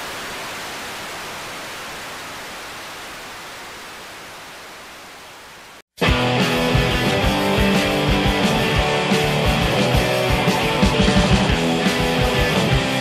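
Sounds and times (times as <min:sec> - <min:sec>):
static hiss: 0:00.0 - 0:05.8
electric guitar rock music: 0:06.0 - 0:13.0.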